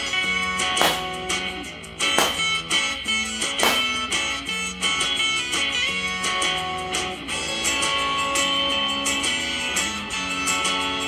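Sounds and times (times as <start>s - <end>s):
upbeat guitar music: 0.0s - 11.0s
balloon pops: 0.8s - 1.2s, 2.2s - 2.6s, 3.6s - 4.0s.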